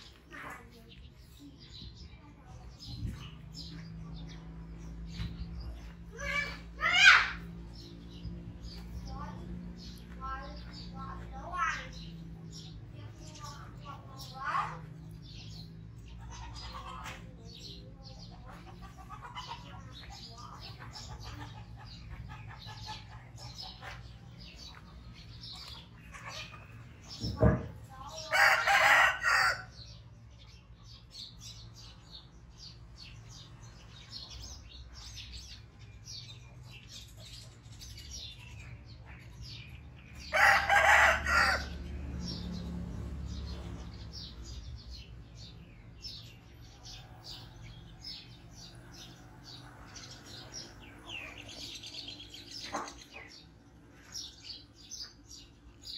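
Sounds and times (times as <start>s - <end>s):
small birds chirping: 0.0s - 55.9s
rooster crowing: 28.3s - 29.7s, 40.3s - 41.8s.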